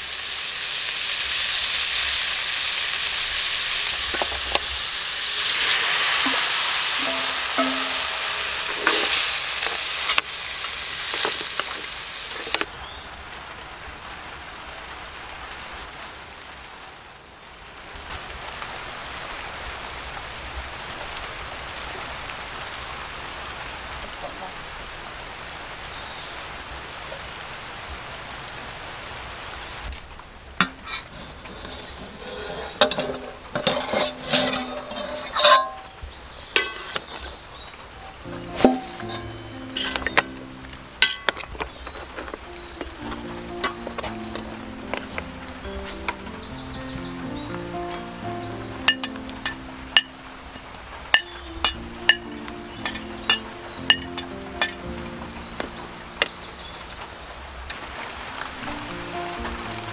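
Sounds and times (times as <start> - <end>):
clams sizzling in oil: 0.0 - 13.0, 28.9 - 58.4
utensil knocking against pan: 7.0 - 9.0, 38.4 - 40.3, 48.9 - 54.8.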